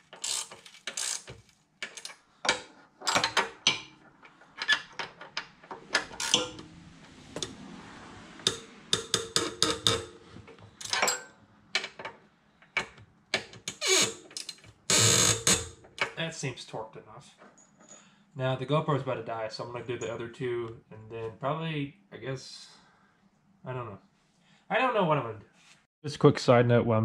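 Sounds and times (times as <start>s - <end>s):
metallic clicks of tools and bolts: 0.0s - 6.7s, 10.8s - 16.2s.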